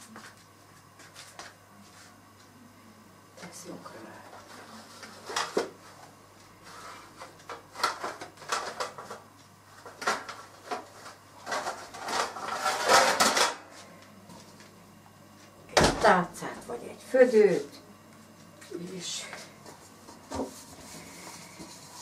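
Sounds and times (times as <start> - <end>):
kitchenware clattering and scraping: 4.4 - 5.8, 6.7 - 9.2, 9.9 - 13.7.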